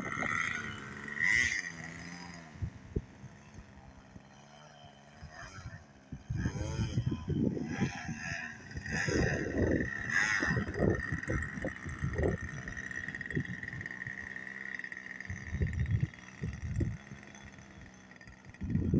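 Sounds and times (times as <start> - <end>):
wind buffeting microphone: 0.0 - 1.0, 2.5 - 3.8, 5.5 - 14.3, 15.2 - 17.2, 18.5 - 18.9
model airplane engine idling: 0.0 - 18.9.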